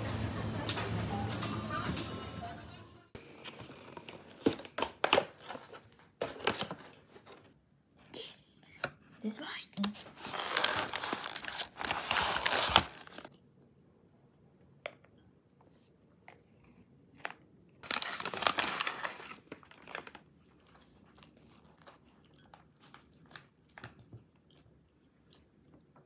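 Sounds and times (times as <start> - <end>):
paper wrapping crinkling: 9.9 - 13.4, 17.8 - 20.3.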